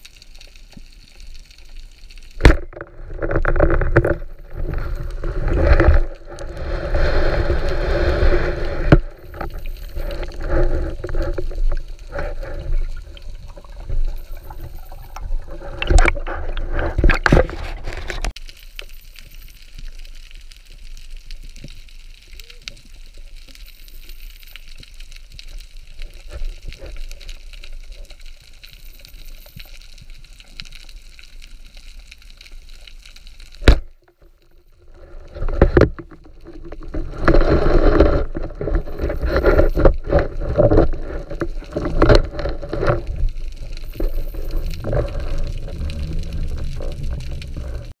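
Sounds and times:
underwater hiss and ticking: 0:00.0 - 0:48.0
low rumble: 0:43.3 - 0:48.0.

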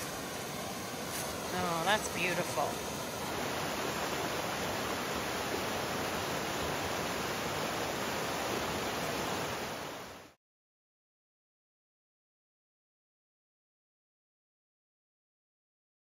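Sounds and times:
flowing water rushing: 0:00.0 - 0:10.4.

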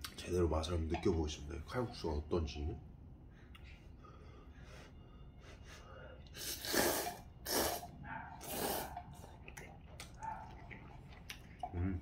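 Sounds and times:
person slurping noodles: 0:06.3 - 0:09.0.

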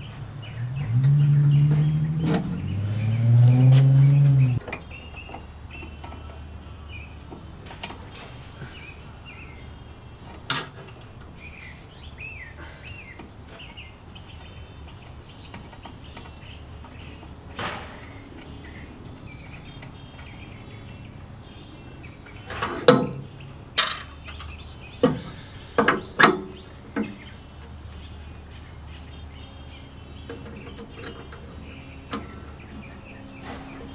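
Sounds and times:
birds chirping: 0:00.0 - 0:33.9
metallic clinks of brake lines: 0:10.5 - 0:11.2, 0:23.8 - 0:24.6.

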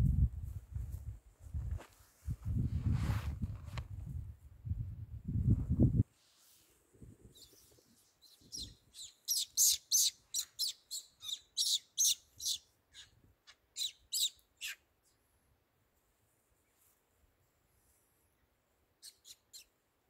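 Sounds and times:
bird chirping: 0:07.3 - 0:14.8, 0:19.0 - 0:19.8.

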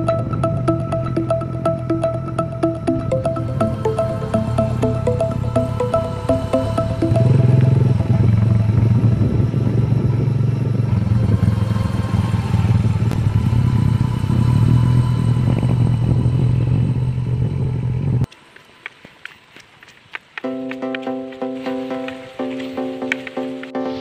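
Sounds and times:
small motorcycle engine running: 0:06.9 - 0:18.2
wind noise on microphone: 0:07.0 - 0:18.3.

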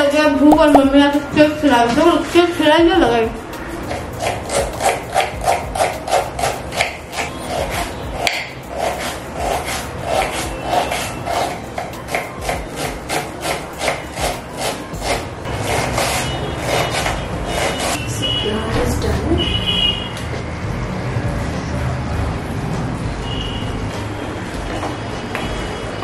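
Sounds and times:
rhythmic rubbing and scraping: 0:02.1 - 0:18.0.

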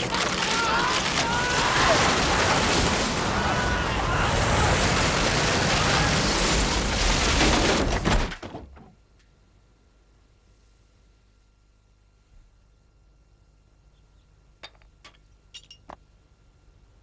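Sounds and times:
faint voices: 0:00.0 - 0:04.9
rushing tornado wind: 0:00.0 - 0:08.2.

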